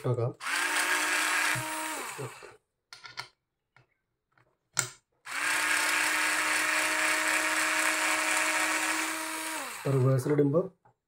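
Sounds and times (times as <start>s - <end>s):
cordless screwdriver motor running: 0.4s - 2.6s, 5.3s - 10.2s.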